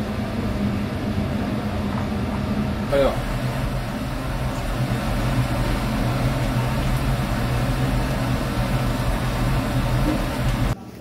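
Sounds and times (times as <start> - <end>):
low hum: 0.0 - 10.8
food sizzling in hot oil: 2.9 - 10.8.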